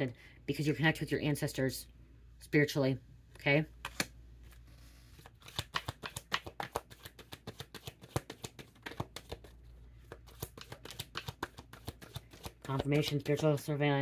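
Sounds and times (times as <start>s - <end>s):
cards being shuffled by hand: 3.8s - 13.7s.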